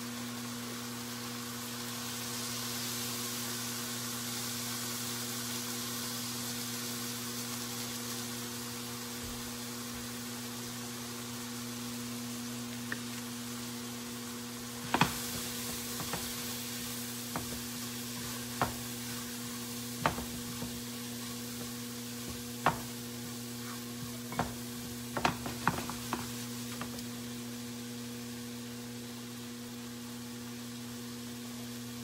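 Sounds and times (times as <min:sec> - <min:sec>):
chicken sizzling in a skillet: 0:00.0 - 0:32.0
utensil knocking against pan: 0:14.8 - 0:19.4, 0:20.0 - 0:23.1, 0:24.3 - 0:27.0.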